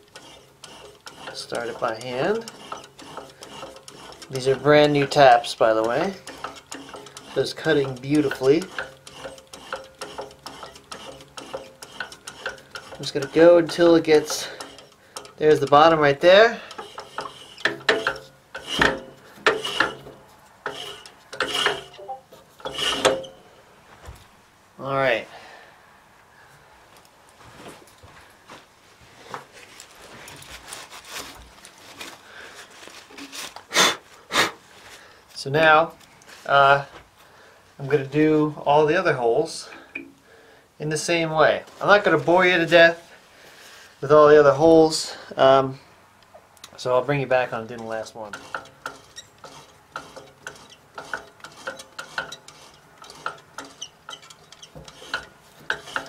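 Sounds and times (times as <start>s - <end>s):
drill bit scraping metal: 0.0s - 23.4s, 47.3s - 56.0s
rag rubbing on metal: 0.0s - 23.4s, 47.0s - 56.0s.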